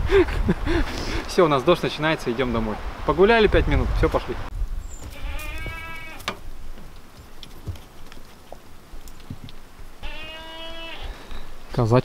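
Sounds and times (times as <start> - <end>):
goat bleating: 5.0 - 6.3, 10.0 - 11.3.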